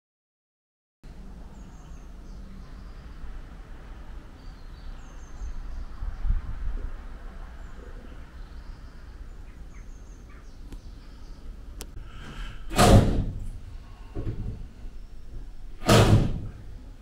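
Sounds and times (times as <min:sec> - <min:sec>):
dull bang: 0:12.3 - 0:13.6, 0:15.8 - 0:16.7.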